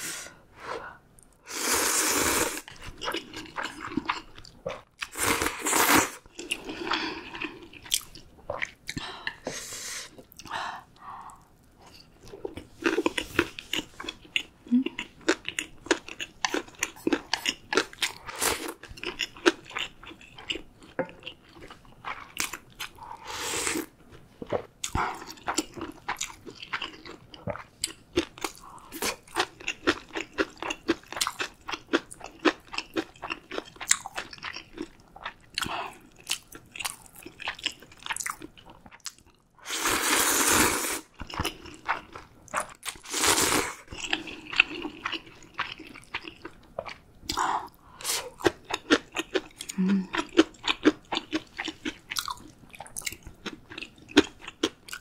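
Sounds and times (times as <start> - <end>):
slurping noodles: 1.5 - 2.7, 39.6 - 41.1.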